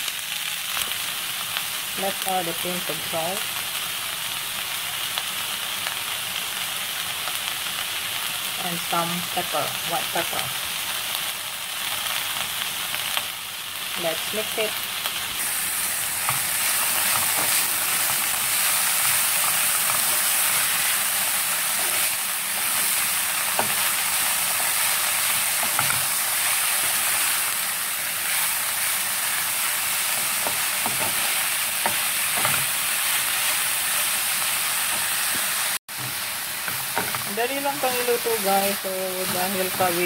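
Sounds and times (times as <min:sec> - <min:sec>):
cabbage sizzling in a frying pan: 0:00.0 - 0:40.0
spatula tapping and scraping pan: 0:30.4 - 0:32.7.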